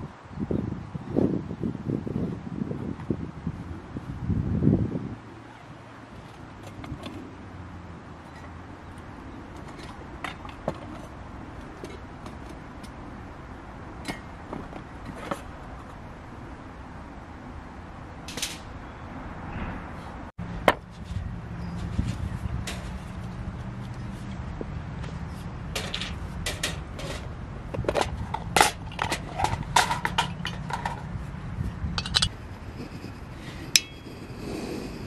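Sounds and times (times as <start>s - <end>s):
camp gear clicks and knocks: 6.2s - 7.3s, 8.3s - 13.0s, 14.0s - 16.0s, 21.8s - 31.2s, 32.0s - 32.3s.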